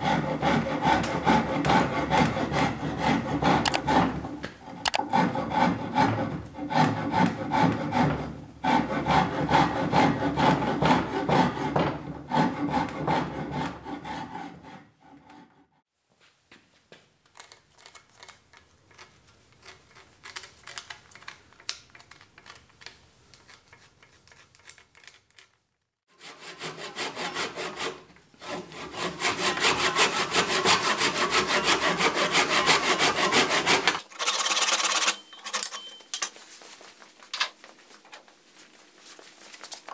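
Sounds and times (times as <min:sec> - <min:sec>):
hand rasp scraping wood: 0:00.0 - 0:15.8, 0:26.1 - 0:35.1.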